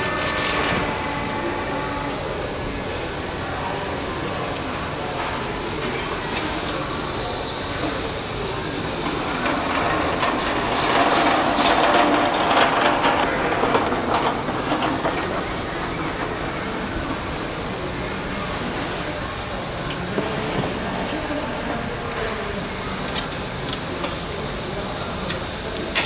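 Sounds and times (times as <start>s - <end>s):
steady background noise: 0.0s - 26.0s
pallet truck rattling over concrete: 9.0s - 17.1s.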